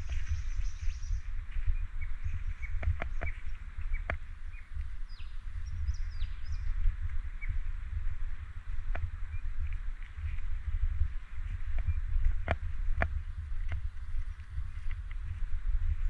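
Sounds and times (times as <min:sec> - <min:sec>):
birds chirping: 0:00.0 - 0:07.7
steady low rumble: 0:00.0 - 0:16.0.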